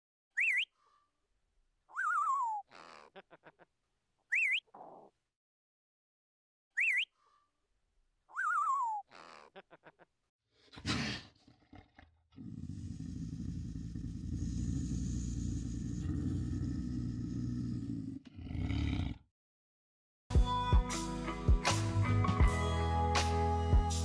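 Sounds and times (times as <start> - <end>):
parrot whistles: 6.8 - 7.1, 8.3 - 9.0.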